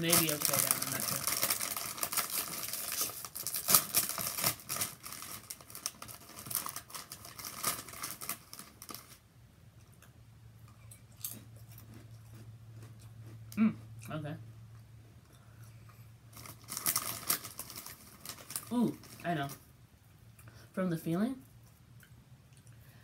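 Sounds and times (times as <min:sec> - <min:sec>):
chip bag crinkling: 0:00.0 - 0:09.2, 0:16.3 - 0:19.6.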